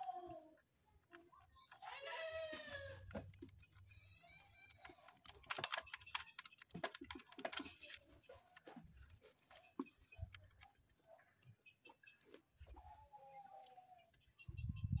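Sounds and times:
faint animal call: 0:01.7 - 0:03.1
clicking and rattling of wiring connectors: 0:03.0 - 0:08.7.

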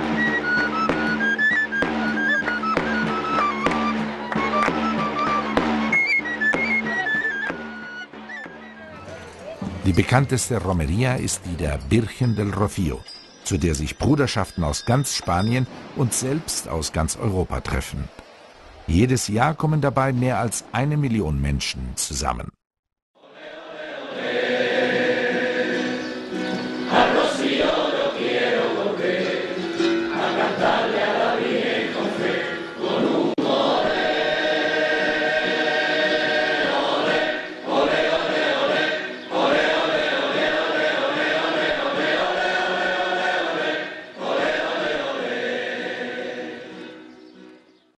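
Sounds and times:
choir singing a hymn: 0:23.2 - 0:47.4.

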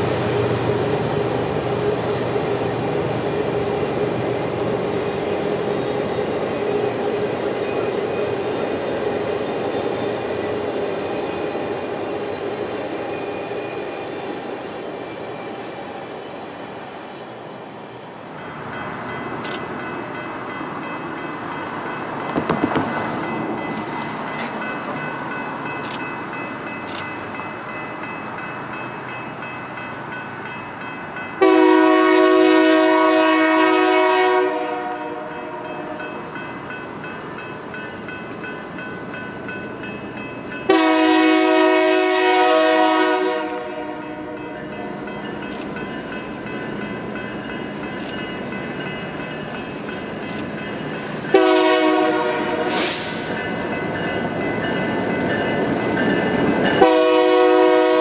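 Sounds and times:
passing train rumble: 0:00.0 - 0:58.0
locomotive air horn blasts: 0:31.4 - 0:36.1, 0:40.7 - 0:44.4, 0:51.3 - 0:53.2, 0:56.8 - 0:58.0.

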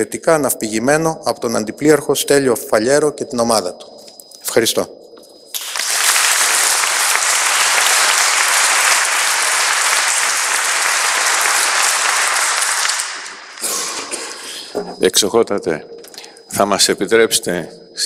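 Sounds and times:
audience applauding: 0:05.6 - 0:14.5.

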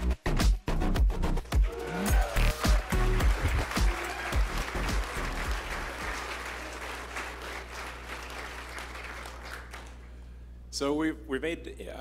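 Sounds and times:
background music bass notes: 0:00.0 - 0:06.1
audience applauding: 0:01.6 - 0:10.1.

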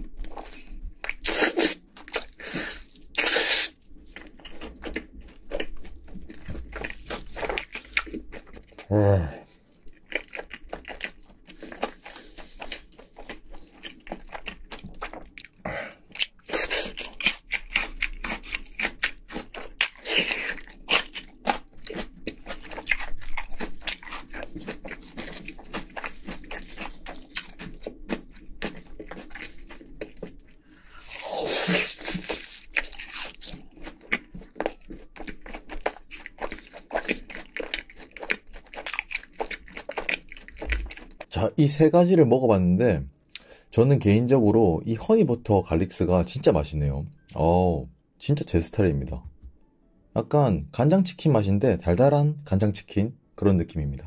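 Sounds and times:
crunching crispy fried chicken: 0:09.8 - 0:41.4.

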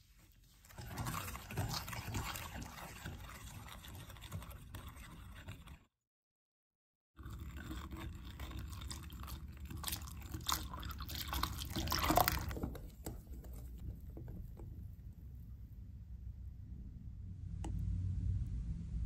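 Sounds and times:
whisk sloshing batter: 0:00.0 - 0:05.9, 0:07.2 - 0:15.0.

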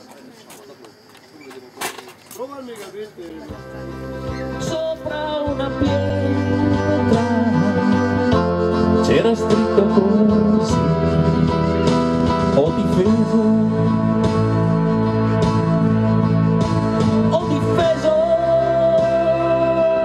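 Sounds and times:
backing track with guitar: 0:02.1 - 0:20.0
man singing into a microphone: 0:04.5 - 0:14.6, 0:17.2 - 0:20.0.

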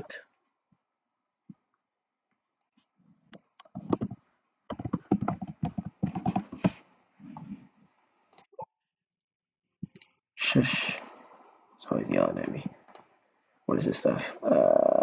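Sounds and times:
computer keyboard typing: 0:03.6 - 0:06.8.

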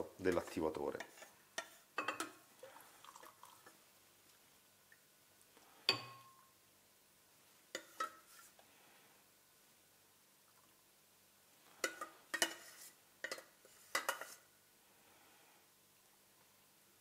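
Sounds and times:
metal ladle clinking on saucepan: 0:00.4 - 0:02.4, 0:05.9 - 0:06.5.

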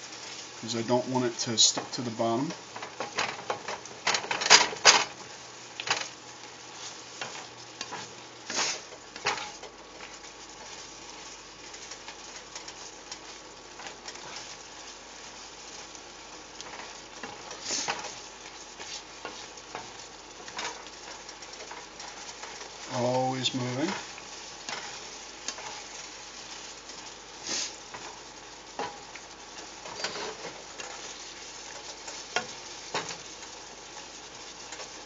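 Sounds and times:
food sizzling in pan: 0:00.0 - 0:35.0
spatula scraping pan: 0:06.7 - 0:15.9, 0:16.6 - 0:35.0.

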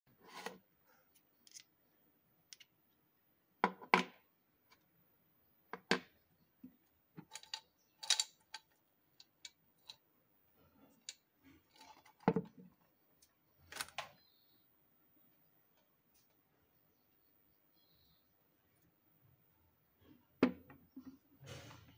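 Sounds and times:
metal parts clicking on wooden table: 0:07.2 - 0:10.0.

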